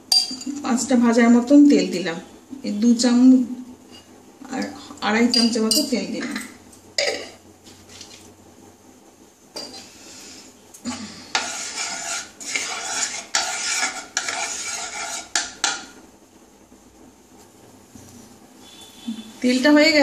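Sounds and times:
wooden spatula scraping pan: 11.3 - 15.8.

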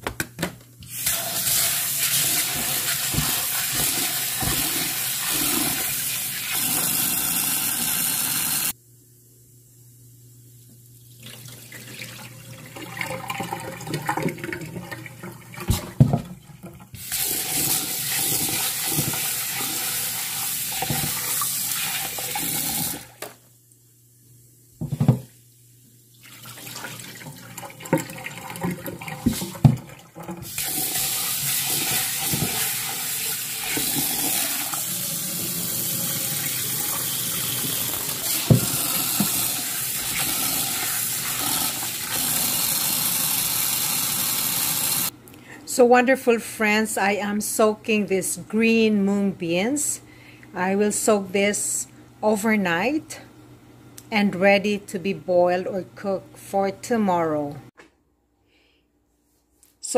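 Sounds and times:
tap running into a bowl: 37.5 - 40.3.

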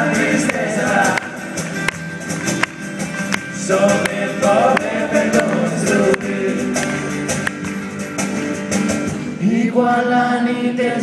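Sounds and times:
person singing: 0.0 - 1.5, 3.6 - 7.4
acoustic guitars strumming: 0.0 - 11.0.

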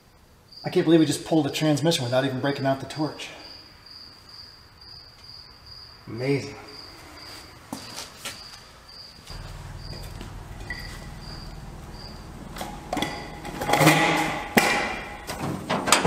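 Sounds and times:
cricket chirping: 0.5 - 0.9, 2.5 - 15.7
jack rolling on concrete rattling: 9.3 - 16.0.

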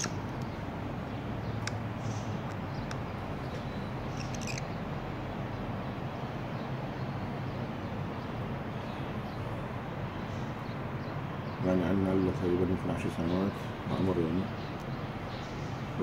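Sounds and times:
canary chirping: 0.0 - 4.9.

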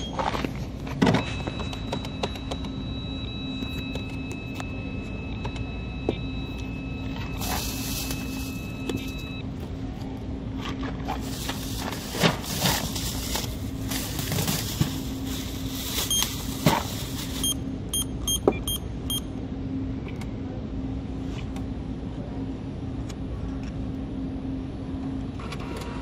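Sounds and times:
steady low hum: 0.0 - 26.0
short electronic keypad beeps: 17.4 - 19.3.

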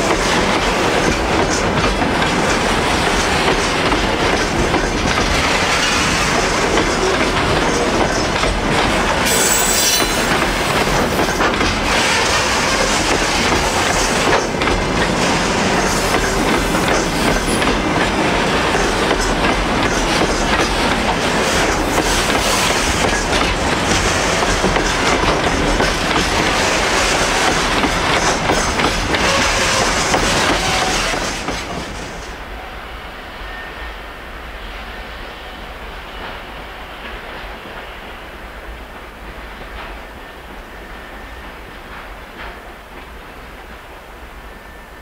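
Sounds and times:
freight train wheels clattering: 0.0 - 32.4.

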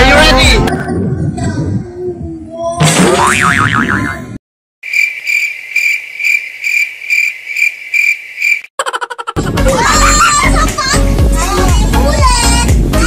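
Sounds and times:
music: 0.0 - 0.8, 9.4 - 13.0
crickets chirping: 4.8 - 8.7.

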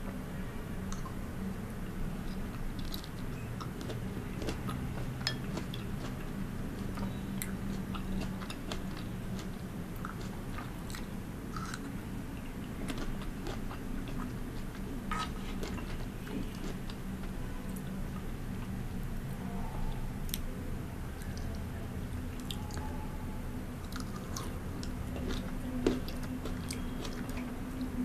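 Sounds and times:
steady low hum: 0.0 - 28.0
person chewing wetly: 2.2 - 17.6, 23.8 - 28.0.

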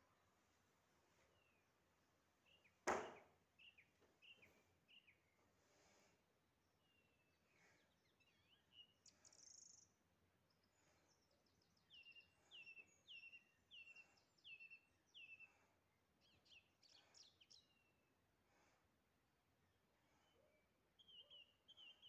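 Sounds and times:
songbird singing: 2.4 - 5.5, 6.7 - 18.2, 19.6 - 22.0.

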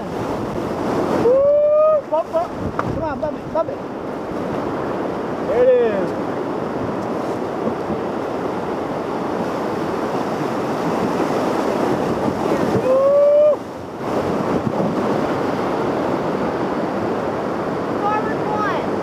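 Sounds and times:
whitewater rapids roaring: 0.0 - 19.0
person whooping: 1.2 - 2.2, 12.8 - 13.6.

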